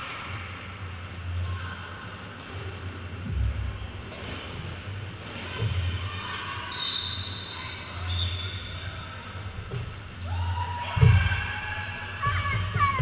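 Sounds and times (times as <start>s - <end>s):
skates rolling on hall floor: 0.0s - 13.0s
short high whistle tone: 6.7s - 8.8s.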